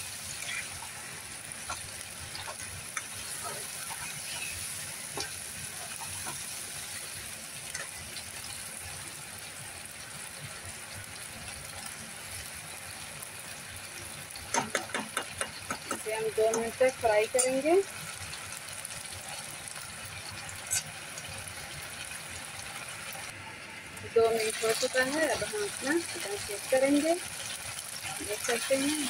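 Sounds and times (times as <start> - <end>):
food sizzling in hot oil: 0.0 - 29.0
metal spatula tapping and scraping pan: 14.5 - 17.6.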